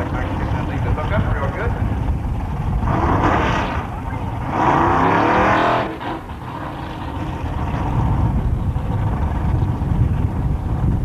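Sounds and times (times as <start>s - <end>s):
drag car engine revving and idling: 0.0s - 10.9s.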